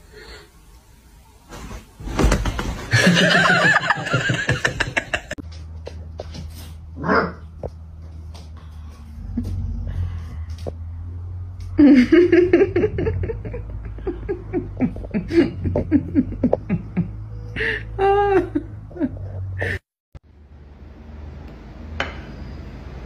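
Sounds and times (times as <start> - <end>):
steady low hum: 2.5 - 19.7.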